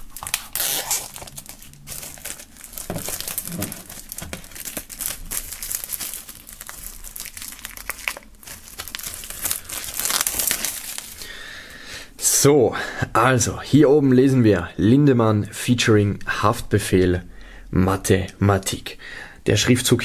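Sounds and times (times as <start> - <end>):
plastic film crinkling: 0.0 - 11.3.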